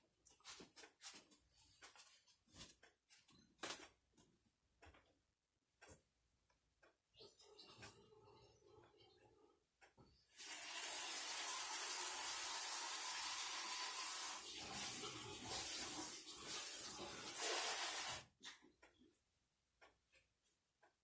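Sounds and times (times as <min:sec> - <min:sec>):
water running: 0:10.3 - 0:18.3.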